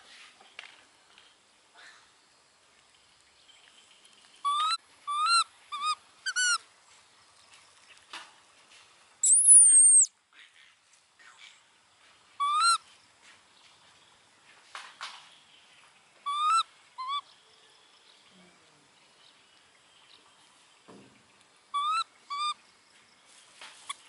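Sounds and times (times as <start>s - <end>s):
baby monkey squeaky coos: 4.4s - 6.6s, 9.2s - 10.1s, 12.4s - 12.8s, 16.2s - 17.2s, 21.7s - 22.6s
high monkey whistle: 9.2s - 10.1s, 12.4s - 12.8s, 21.8s - 22.6s.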